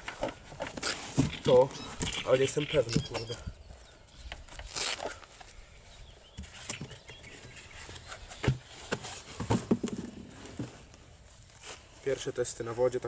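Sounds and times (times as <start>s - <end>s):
foam packing rubbing and scraping: 0.0s - 2.5s, 6.4s - 12.2s.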